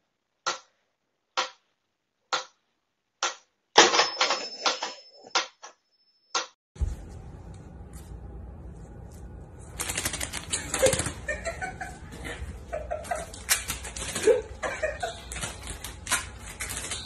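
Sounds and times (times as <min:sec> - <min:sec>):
paper towel scuffing on tile: 0:06.8 - 0:09.8.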